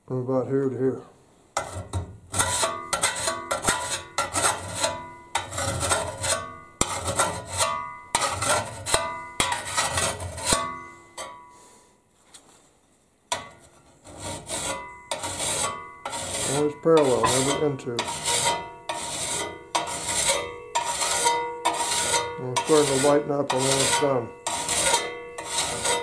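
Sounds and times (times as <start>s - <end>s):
file rasping on steel blade: 1.6s - 10.8s, 13.9s - 26.0s
metal blade ringing: 10.5s - 11.6s, 14.8s - 26.0s.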